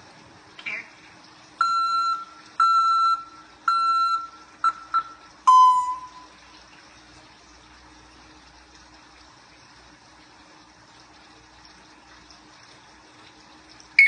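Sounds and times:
parrot whistling beep-like notes: 1.6s - 6.3s.

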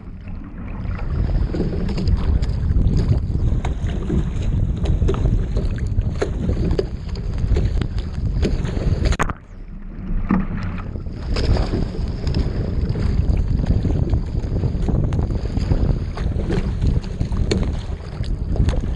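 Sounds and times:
waves splashing against a boat: 0.0s - 18.9s
wind buffeting microphone: 0.0s - 18.9s.

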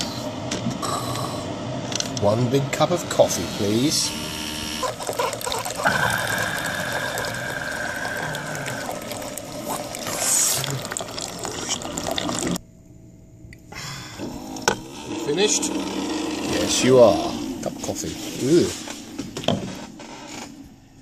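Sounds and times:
coffee machine whine: 0.0s - 12.7s, 13.8s - 21.0s
coffee streaming into a mug: 4.8s - 12.6s.

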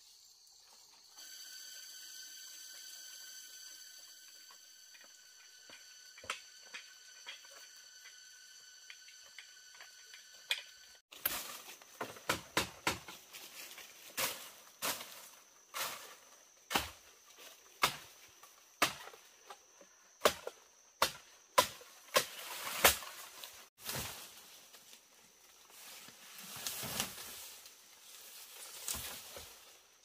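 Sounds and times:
high insect buzz: 0.0s - 12.2s
sharp chopping strikes: 12.0s - 13.2s, 17.8s - 18.1s, 18.8s - 19.2s, 20.2s - 23.2s.

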